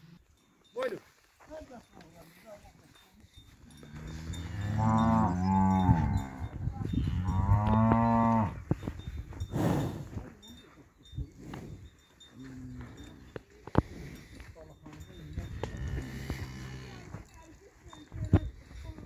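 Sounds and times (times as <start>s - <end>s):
cow mooing: 3.9s - 8.6s.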